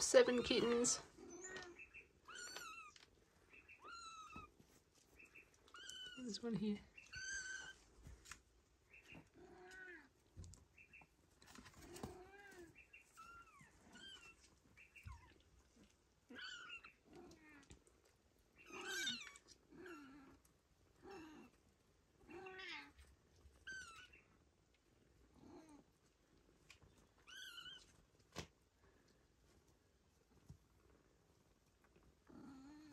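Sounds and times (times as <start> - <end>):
kittens mewing: 18.6 - 20.4.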